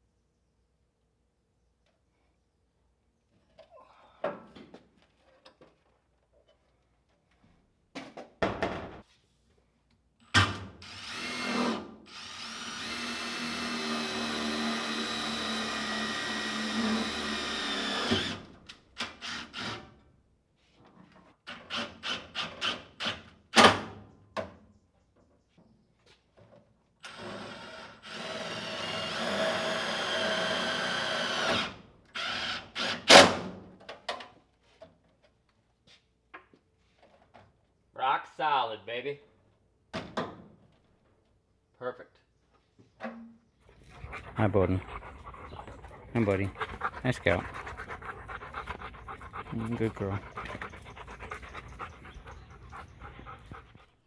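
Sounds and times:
cordless drill running: 10.8s - 18.4s, 27.1s - 32.9s.

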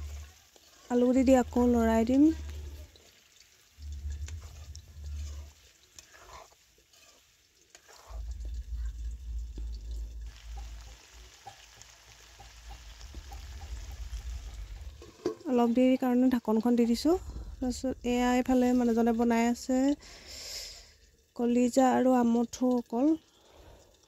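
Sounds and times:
spatula scraping a pan: 0.0s - 3.2s, 3.8s - 9.1s
food sizzling in a wok: 0.0s - 23.8s
low rumble: 1.2s - 2.9s, 3.8s - 5.6s, 8.1s - 11.3s, 12.8s - 15.2s, 16.9s - 20.1s.

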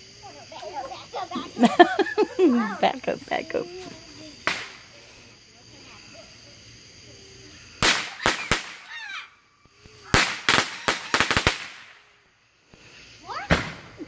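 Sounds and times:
firecrackers banging: 4.3s - 5.0s, 7.8s - 9.0s, 9.9s - 12.2s, 13.4s - 14.0s.

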